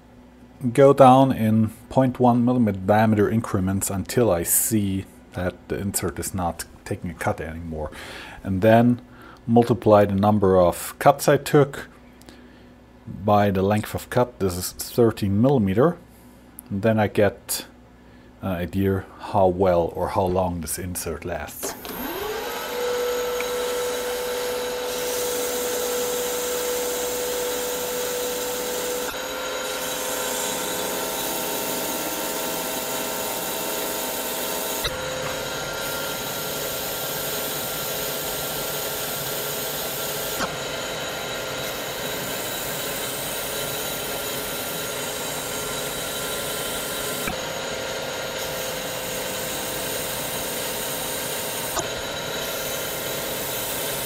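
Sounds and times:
metal lathe hiss and whine: 21.9s - 54.0s.

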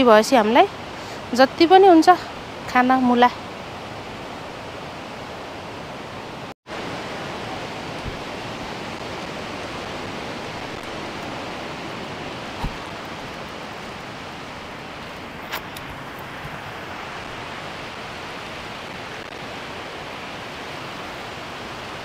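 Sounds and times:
steady outdoor rushing noise: 0.2s - 22.0s
soft low thump: 8.0s - 8.3s, 12.6s - 13.0s.

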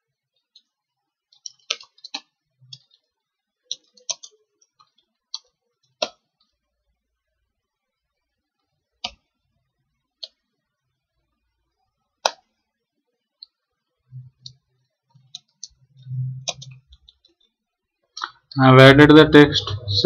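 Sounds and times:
keyboard keys clicking: 16.4s - 17.1s.

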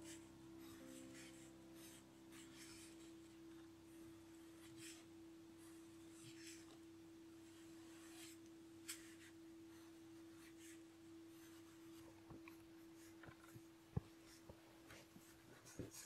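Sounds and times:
pencil scratching on paper: 0.0s - 6.8s, 14.2s - 16.0s
steady low hum: 0.0s - 16.0s.

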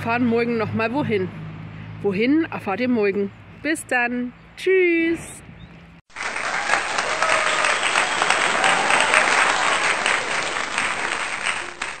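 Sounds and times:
crowd clapping: 6.1s - 12.0s.

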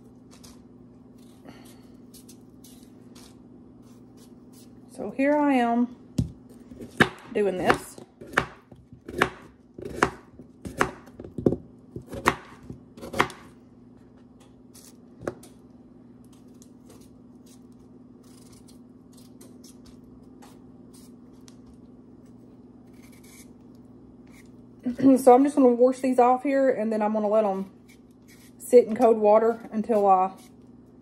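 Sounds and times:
low steady hum: 0.0s - 31.0s
knife chopping on cutting board: 6.2s - 13.5s
vegetable peeler scraping potato: 22.9s - 23.6s, 27.8s - 29.0s.

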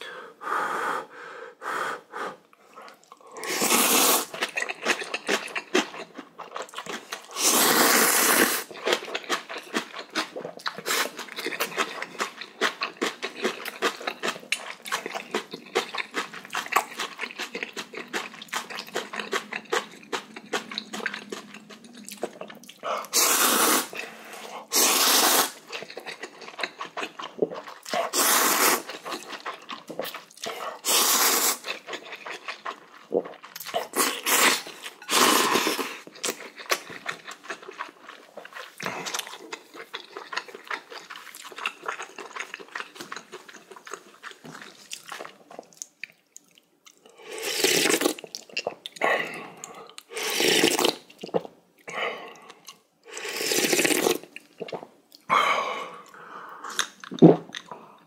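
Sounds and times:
slurping noodles: 3.4s - 5.0s, 7.2s - 9.0s, 23.0s - 26.0s, 27.5s - 32.0s, 33.7s - 36.1s, 47.3s - 48.2s, 50.1s - 51.0s, 53.1s - 54.2s.

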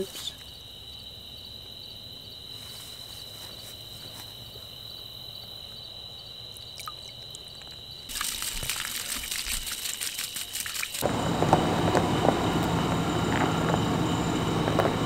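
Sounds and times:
water splashing and dripping: 6.6s - 11.1s
high-pitched whine: 11.0s - 15.0s.

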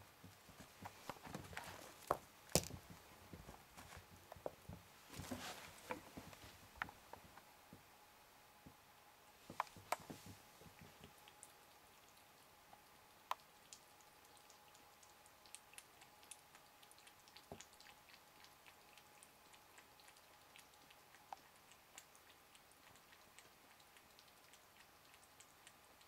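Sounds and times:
kitten lapping water: 9.6s - 26.0s.

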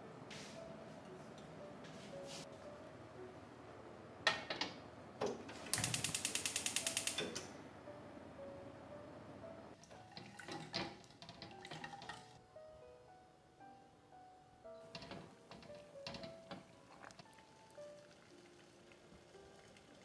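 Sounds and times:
gas hob igniter ticking: 4.3s - 7.6s.

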